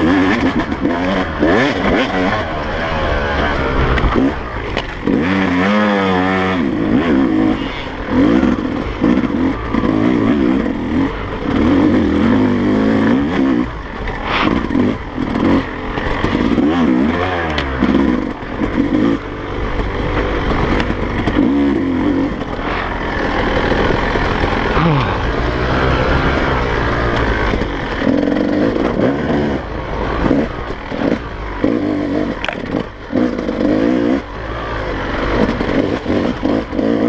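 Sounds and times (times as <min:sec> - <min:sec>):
motorcycle engine revving: 0:00.0 - 0:37.0
bike knocks and rattles: 0:30.1 - 0:34.0.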